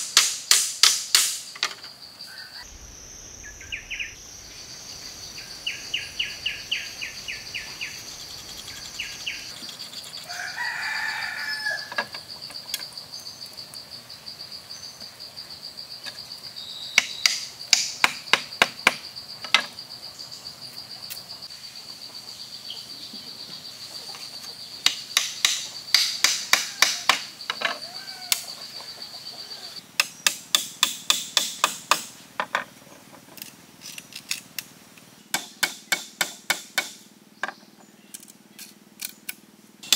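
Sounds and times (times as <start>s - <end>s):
hammer tapping on bamboo: 0.0s - 1.8s, 17.0s - 19.7s, 24.8s - 27.7s, 30.0s - 32.6s, 35.3s - 37.6s
high insect drone: 0.1s - 32.7s
rooster crowing: 10.2s - 12.1s, 26.4s - 29.8s.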